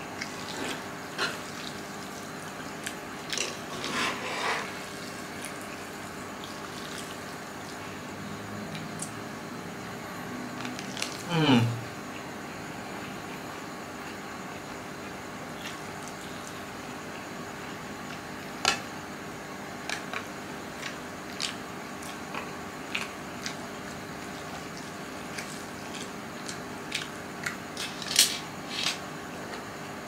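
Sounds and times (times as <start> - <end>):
chewing: 19.8 - 27.7.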